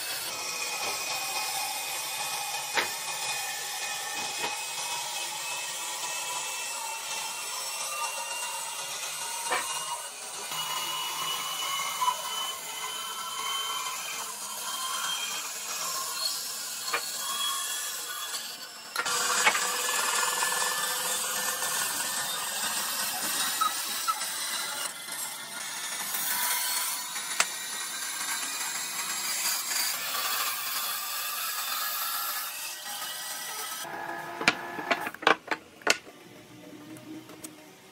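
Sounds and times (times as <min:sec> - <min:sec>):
woodworking tool scraping wood: 0:09.5 - 0:09.8, 0:33.8 - 0:36.0.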